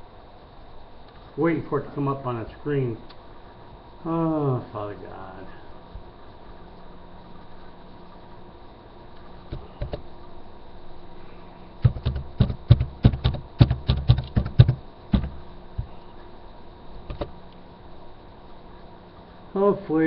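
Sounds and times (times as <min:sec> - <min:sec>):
typing on a computer keyboard: 0:11.8 - 0:15.3.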